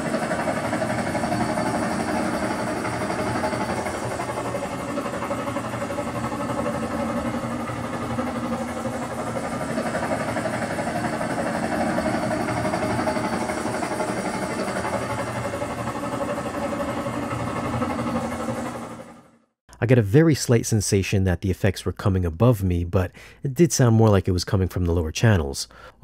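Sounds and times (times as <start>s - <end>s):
helicopter rotor beating: 0.0s - 19.5s.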